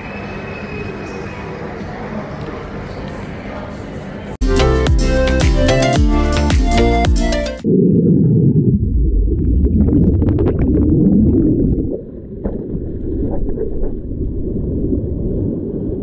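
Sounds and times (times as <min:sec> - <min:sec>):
bubbles bursting: 0:07.6 - 0:16.0
muffled underwater bubbling rumble: 0:07.6 - 0:16.0.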